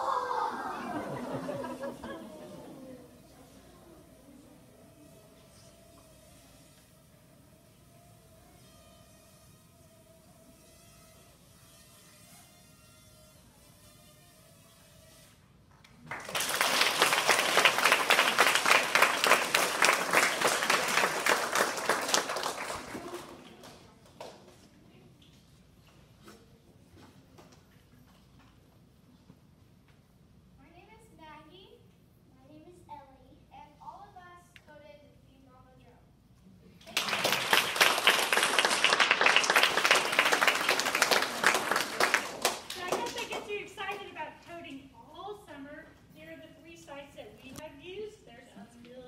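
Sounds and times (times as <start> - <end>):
children applauding: 16.0 - 24.4, 36.8 - 43.6.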